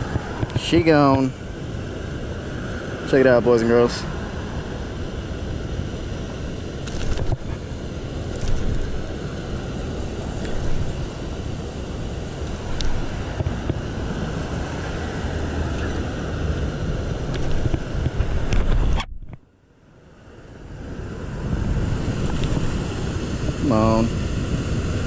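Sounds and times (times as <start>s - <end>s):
water rushing through spillway: 0.0s - 18.6s
wind gusts on microphone: 0.0s - 19.4s, 20.0s - 25.0s.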